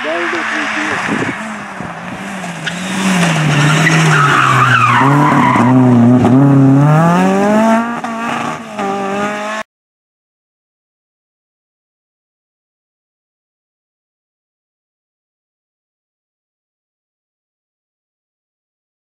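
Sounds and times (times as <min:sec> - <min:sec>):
tyres scrabbling on dusty road: 0:00.0 - 0:06.4
rally car engine passing: 0:00.0 - 0:09.6.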